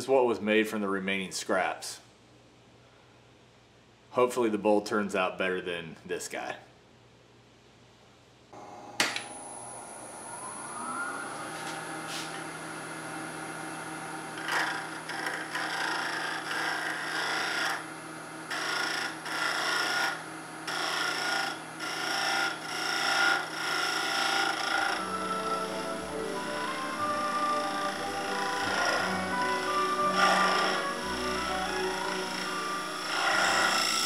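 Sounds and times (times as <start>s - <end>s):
lathe motor whine: 8.6s - 34.0s
gouge scraping spinning wood: 14.3s - 17.8s, 18.5s - 34.0s.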